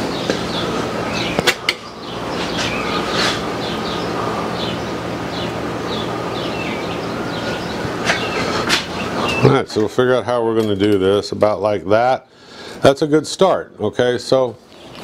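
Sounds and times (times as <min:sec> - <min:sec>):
bird chirps: 0:00.0 - 0:09.6
workshop hum and hiss: 0:00.0 - 0:15.0.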